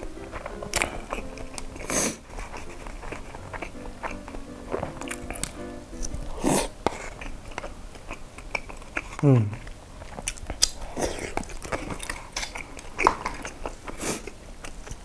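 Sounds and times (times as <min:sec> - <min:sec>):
background music: 0:00.0 - 0:06.8
chewing and slurping noodles: 0:00.0 - 0:09.2, 0:10.0 - 0:15.0.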